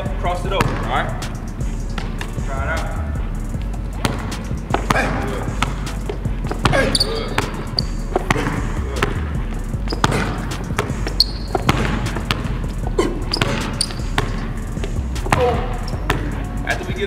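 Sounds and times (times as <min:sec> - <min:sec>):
background music: 0:00.0 - 0:17.0
basketball bouncing on wood floor: 0:00.6 - 0:00.9, 0:04.0 - 0:16.3.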